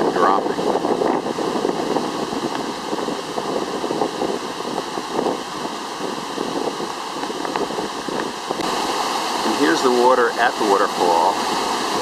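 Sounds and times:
river rushing over rapids: 0:00.0 - 0:12.0.

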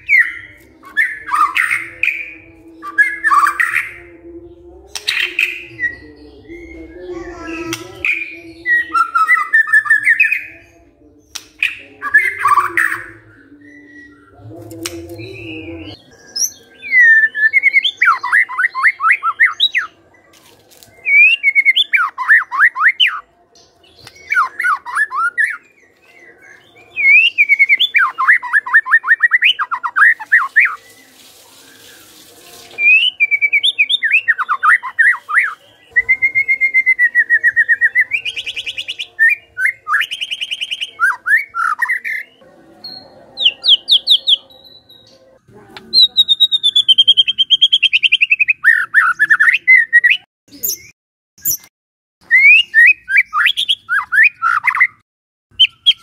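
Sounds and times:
songbird singing falling notes: 0:11.2 - 0:32.1, 0:45.8 - 0:56.0.

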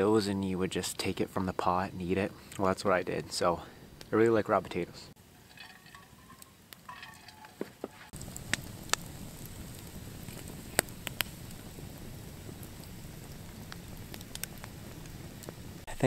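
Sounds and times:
campfire crackling and popping: 0:00.5 - 0:16.0.

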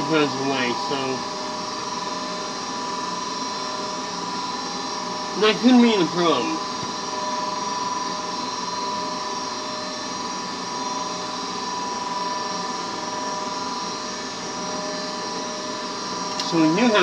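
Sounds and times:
furnace motor whining: 0:00.0 - 0:17.0.

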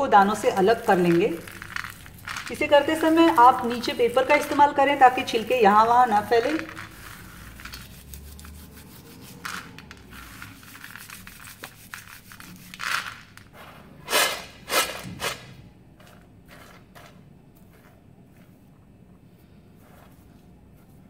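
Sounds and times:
peanut skins crackling rustle: 0:00.0 - 0:13.5.

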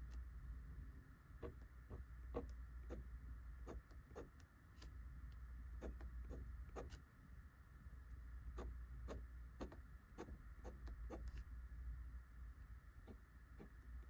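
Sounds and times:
fountain pen scratching on paper: 0:01.4 - 0:04.9, 0:05.8 - 0:07.0, 0:08.5 - 0:11.5, 0:13.0 - 0:13.8.

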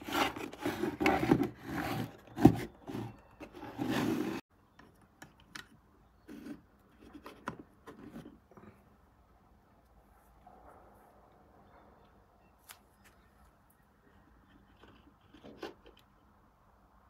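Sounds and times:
plastic box rubbing on wooden table: 0:00.0 - 0:04.4.

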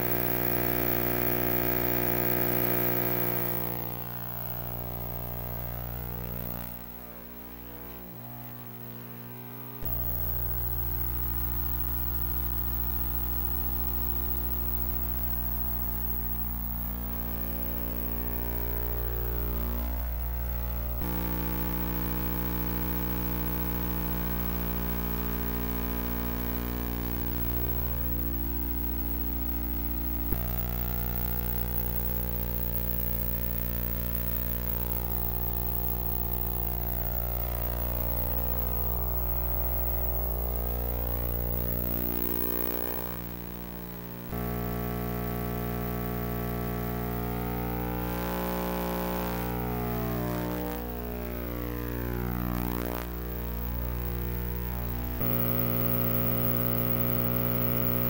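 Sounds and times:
electrical hum: 0:00.0 - 0:58.0.

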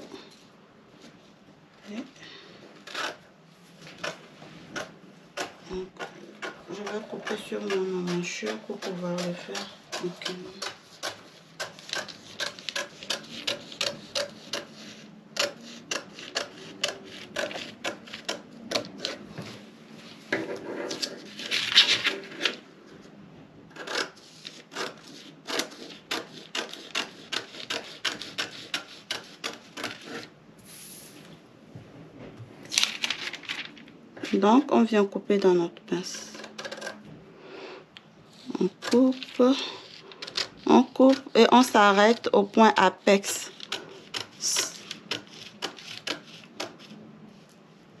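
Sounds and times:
rubbing on paper: 0:24.2 - 0:30.3.

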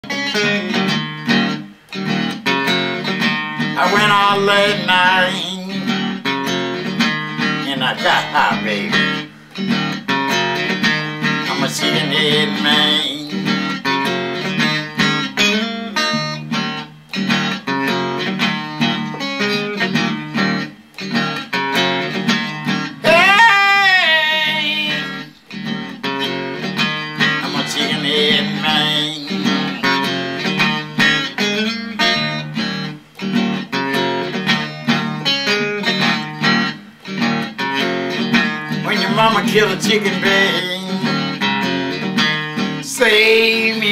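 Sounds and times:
electric guitar blues riff: 0:00.0 - 0:43.9
person singing: 0:03.8 - 0:06.1, 0:07.5 - 0:09.3, 0:11.4 - 0:13.8, 0:23.0 - 0:25.4, 0:27.4 - 0:30.1, 0:38.8 - 0:41.4, 0:42.8 - 0:43.9.

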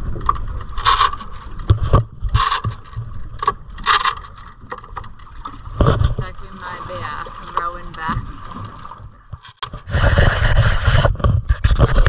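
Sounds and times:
wind buffeting microphone: 0:09.7 - 0:12.0.

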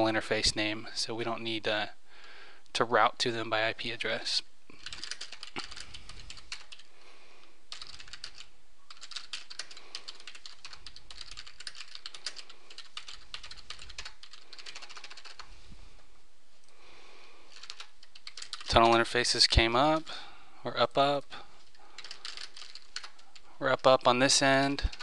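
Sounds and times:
computer keyboard typing: 0:04.8 - 0:06.9, 0:07.7 - 0:15.5, 0:17.5 - 0:19.0, 0:21.8 - 0:23.5.

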